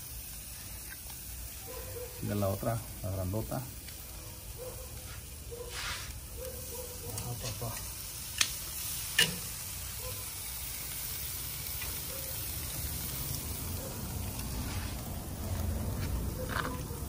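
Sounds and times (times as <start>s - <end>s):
ribs sizzling on a grill: 0.0s - 17.0s
metal tongs clicking: 8.4s - 9.5s.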